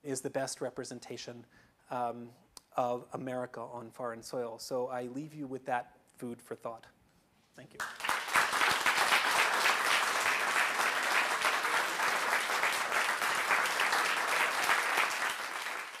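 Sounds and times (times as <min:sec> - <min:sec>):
audience applauding: 0:07.8 - 0:16.0.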